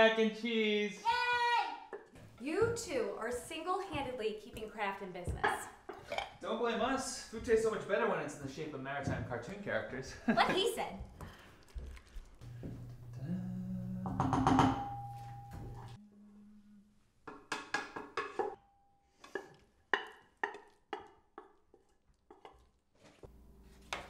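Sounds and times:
dishes and spoon clinking: 0:14.1 - 0:16.0.

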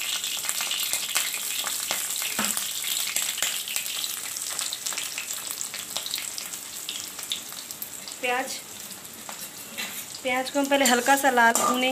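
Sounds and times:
onions sizzling in hot oil: 0:00.0 - 0:11.9.

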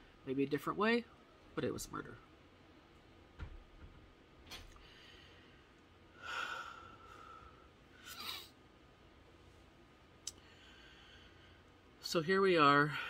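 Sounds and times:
faint click: 0:10.2 - 0:10.4.

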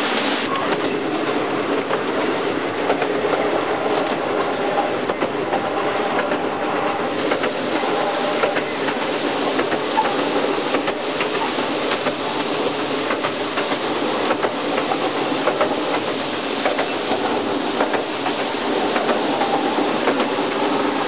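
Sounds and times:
miniature train wheels clacking: 0:02.8 - 0:20.9.

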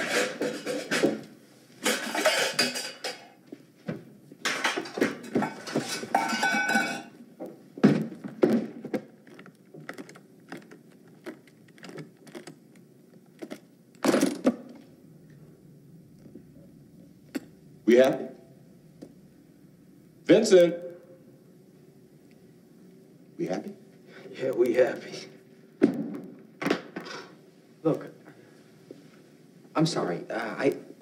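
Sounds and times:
pots and pans clattering: 0:00.0 - 0:03.4, 0:04.4 - 0:07.2.

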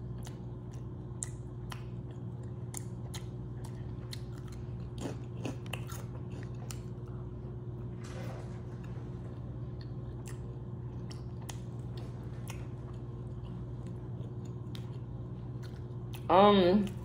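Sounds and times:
steady low hum: 0:00.0 - 0:17.0
wet mouth clicks and chewing: 0:00.1 - 0:07.2, 0:09.8 - 0:16.3.

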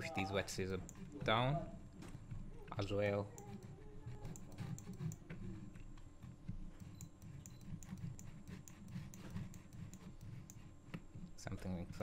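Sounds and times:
low steady hum: 0:00.0 - 0:12.0
mouse and keyboard clicks: 0:03.4 - 0:05.3, 0:06.7 - 0:10.6.

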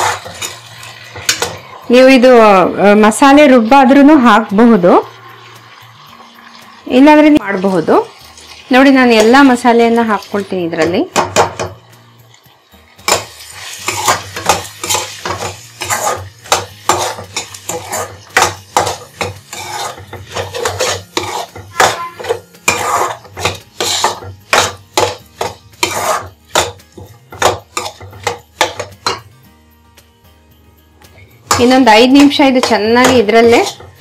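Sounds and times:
spatula scraping frying pan: 0:00.0 - 0:01.8, 0:12.9 - 0:29.2, 0:31.1 - 0:34.0.

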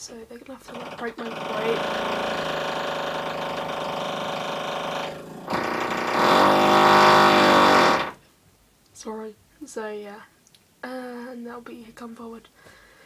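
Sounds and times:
electric power drill running: 0:00.7 - 0:08.2.

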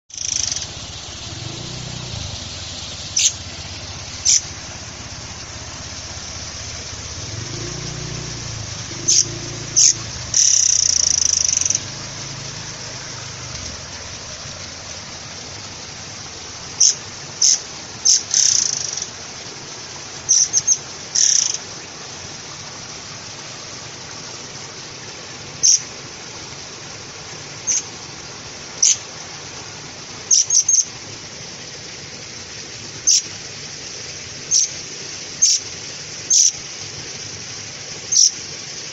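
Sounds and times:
songbird high-pitched calls: 0:00.1 - 0:00.7, 0:03.1 - 0:03.5, 0:04.2 - 0:04.5, 0:07.4 - 0:12.0, 0:16.8 - 0:19.1, 0:20.3 - 0:21.6, 0:25.6 - 0:25.9, 0:27.6 - 0:27.9, 0:28.8 - 0:29.0, 0:30.3 - 0:30.9, 0:33.0 - 0:33.3, 0:34.5 - 0:34.8, 0:35.4 - 0:35.7, 0:36.3 - 0:36.6, 0:38.1 - 0:38.4.

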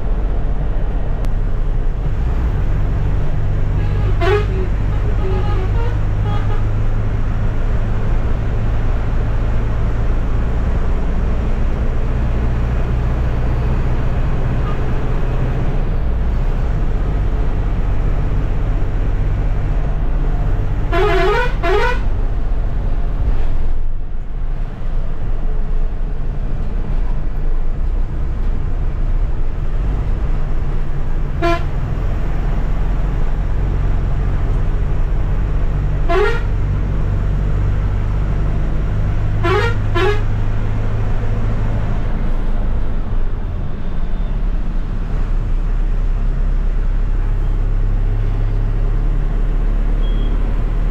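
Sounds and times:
bus engine drone: 0:00.0 - 0:50.9
road noise: 0:00.0 - 0:50.9
horn toots: 0:03.8 - 0:06.7, 0:20.9 - 0:22.1, 0:31.4 - 0:31.7, 0:36.0 - 0:36.6, 0:39.4 - 0:40.3.

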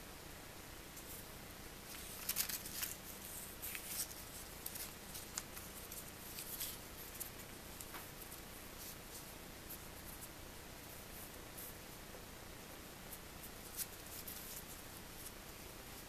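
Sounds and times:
paper crackling and rustling: 0:01.8 - 0:10.3, 0:13.4 - 0:16.0.

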